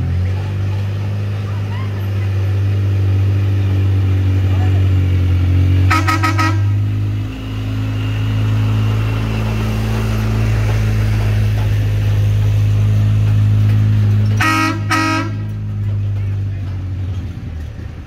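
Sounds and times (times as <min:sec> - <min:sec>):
vehicle engine running: 0:00.0 - 0:18.0
car horn toots: 0:05.8 - 0:07.0, 0:14.3 - 0:15.6.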